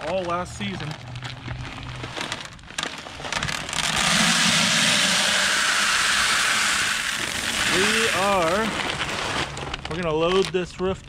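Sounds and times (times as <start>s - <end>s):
corn kernels pouring into bucket: 2.4s - 10.5s
bag rustling: 7.1s - 10.4s.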